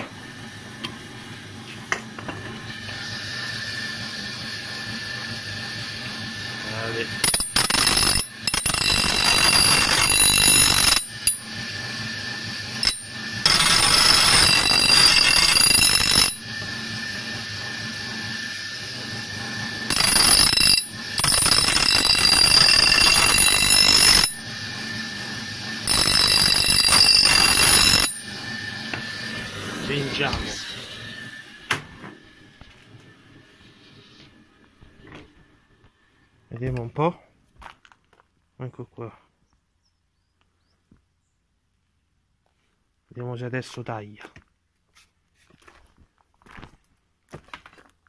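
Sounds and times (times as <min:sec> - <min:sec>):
bench grinder running hum: 0:00.0 - 0:35.0
grinding with high whine: 0:00.0 - 0:36.9.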